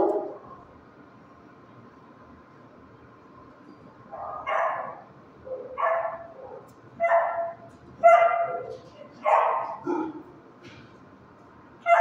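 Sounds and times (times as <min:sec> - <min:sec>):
dog barking: 0:04.1 - 0:10.3.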